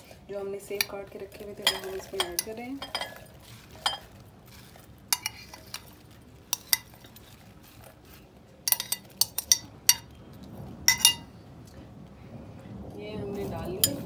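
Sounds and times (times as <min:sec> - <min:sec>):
spoon clinking glass bowls: 0:01.6 - 0:04.2, 0:05.1 - 0:07.2, 0:08.7 - 0:10.1, 0:10.9 - 0:11.3.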